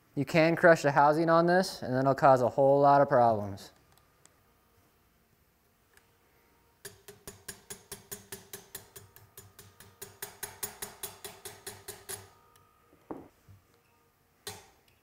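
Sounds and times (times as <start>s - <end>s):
small hammer tapping pin punch: 6.8s - 12.3s.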